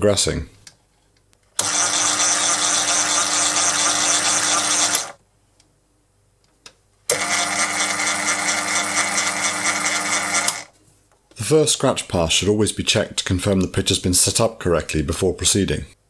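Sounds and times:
mini lathe running: 1.6s - 5.2s, 7.1s - 10.7s.

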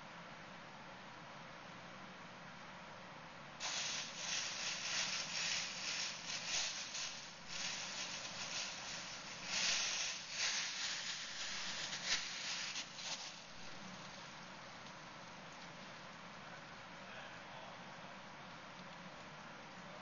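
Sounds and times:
bag rustling and crinkling: 3.6s - 13.8s.

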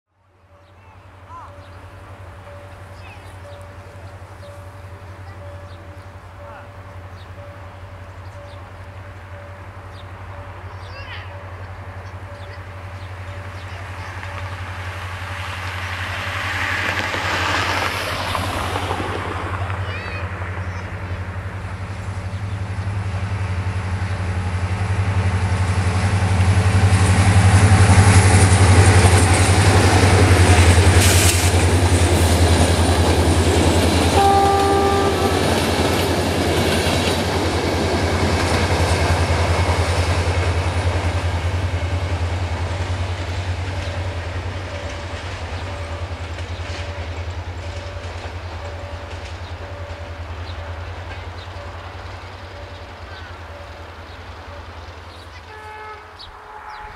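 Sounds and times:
diesel locomotive engine rumbling: 0.2s - 56.9s
train horn blast: 33.9s - 36.0s, 55.3s - 56.9s.

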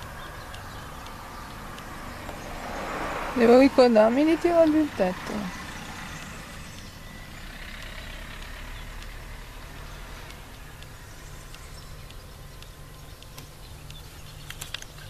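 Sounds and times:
diesel truck engine idling: 0.0s - 15.0s
faint clicks: 6.2s - 15.0s.

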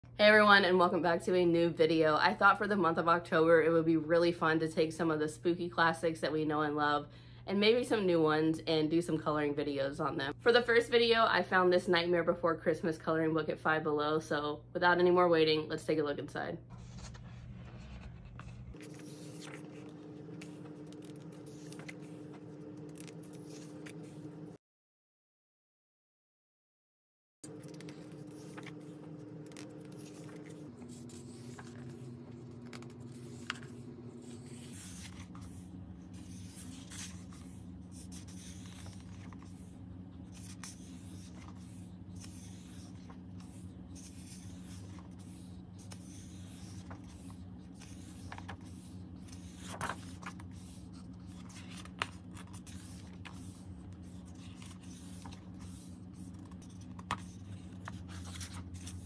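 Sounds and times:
paper pages rustling and flicking: 16.7s - 24.6s, 27.5s - 59.0s.

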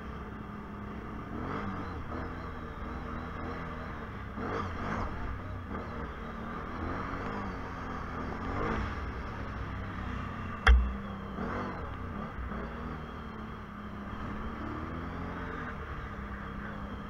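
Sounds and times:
atv engine revving: 0.0s - 17.0s
hard thump: 10.6s - 11.0s.

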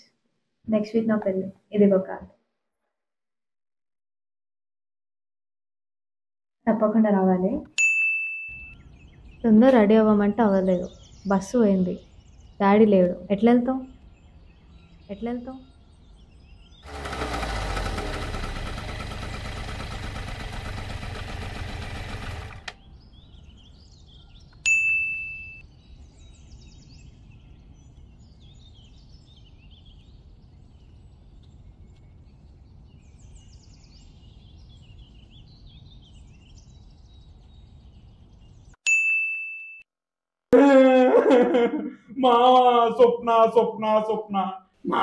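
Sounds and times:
bell-like ding: 7.8s - 8.8s, 24.6s - 25.6s, 38.9s - 39.8s
birds chirping faintly: 8.5s - 38.8s.

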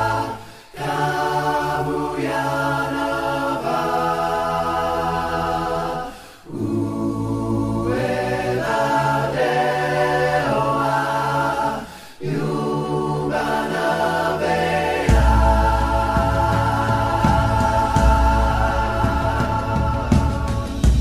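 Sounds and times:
choir singing held chords: 0.0s - 21.0s.

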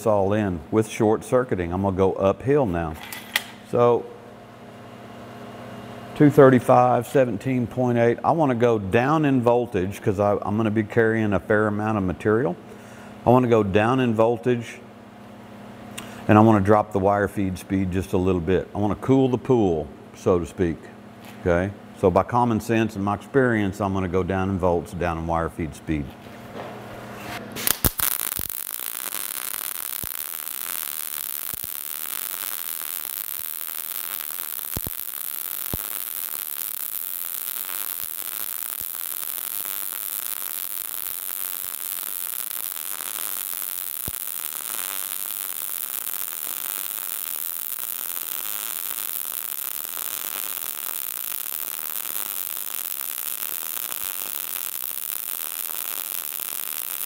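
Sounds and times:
sharp welding pops: 27.6s - 57.0s
welding arc crackling: 27.6s - 57.0s.

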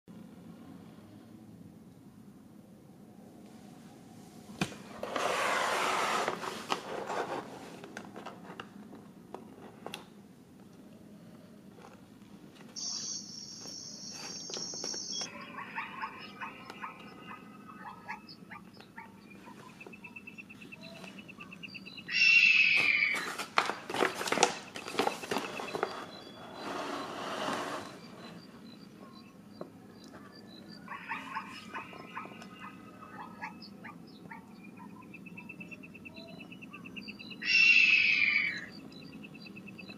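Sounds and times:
plastic foil bag crinkling: 23.2s - 26.0s.

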